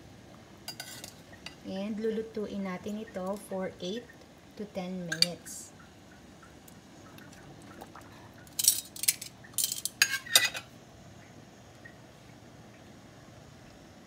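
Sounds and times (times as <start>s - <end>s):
metal tongs clinking on pot: 0.7s - 1.6s, 5.1s - 5.4s, 8.5s - 10.7s.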